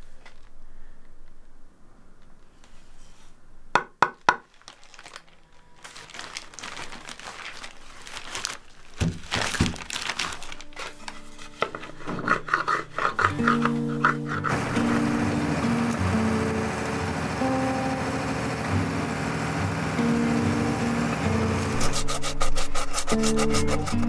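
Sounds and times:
rustling and crinkling: 0:00.0 - 0:03.4, 0:04.4 - 0:14.5
held musical tones: 0:13.3 - 0:22.2.

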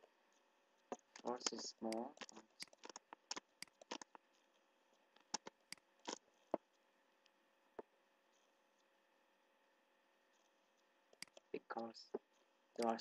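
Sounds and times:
computer mouse clicking: 0:00.3 - 0:04.5, 0:05.1 - 0:07.4, 0:11.1 - 0:11.5, 0:12.2 - 0:13.0.

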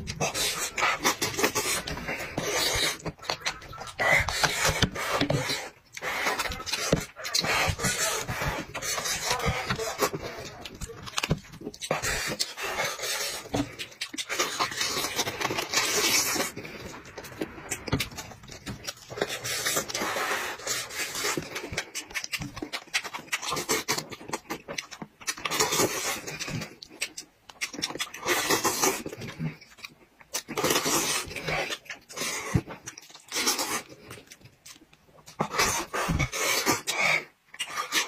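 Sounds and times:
person chewing and slurping: 0:00.0 - 0:38.0
wet mouth clicks and smacking: 0:21.7 - 0:25.6, 0:26.7 - 0:28.8.

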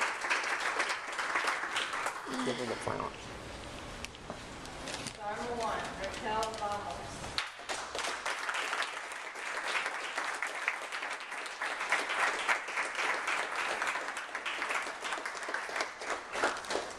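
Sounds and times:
people applauding: 0:00.0 - 0:03.1, 0:07.4 - 0:16.9.

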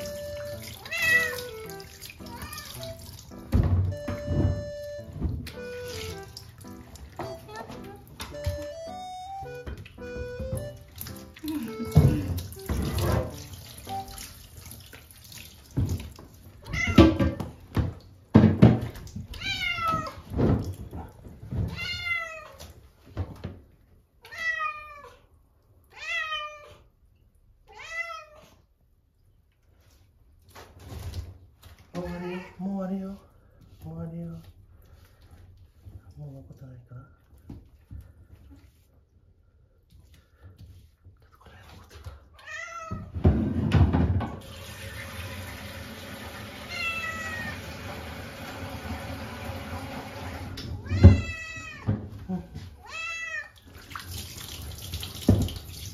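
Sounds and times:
running water: 0:00.0 - 0:22.9, 0:44.3 - 0:51.9, 0:52.6 - 0:55.9
cat meowing: 0:00.8 - 0:01.5, 0:02.2 - 0:02.9, 0:16.6 - 0:17.4, 0:19.3 - 0:20.2, 0:21.7 - 0:22.6, 0:24.2 - 0:25.2, 0:25.9 - 0:26.9, 0:27.7 - 0:28.6, 0:42.4 - 0:43.1, 0:46.7 - 0:47.6, 0:50.8 - 0:51.9, 0:52.8 - 0:53.6.

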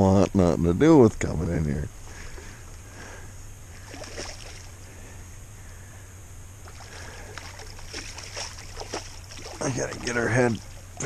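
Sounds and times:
steady low rumble: 0:00.0 - 0:11.0
water sloshing and splashing: 0:03.8 - 0:04.8, 0:06.6 - 0:11.0.

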